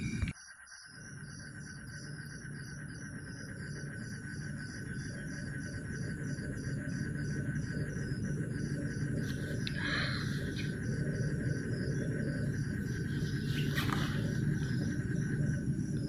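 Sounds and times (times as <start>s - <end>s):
cricket chirping: 0.0s - 16.0s
high insect drone: 0.0s - 16.0s.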